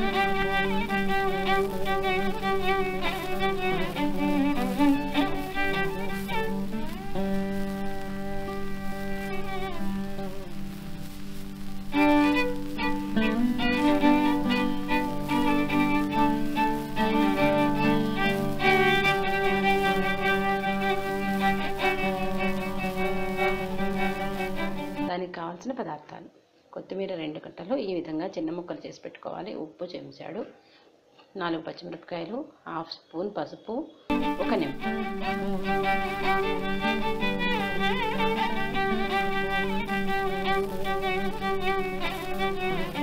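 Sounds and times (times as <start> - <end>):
instrumental melody: 0.0 - 25.1, 34.1 - 43.0
sustained string-like background music: 0.0 - 25.1, 34.1 - 43.0.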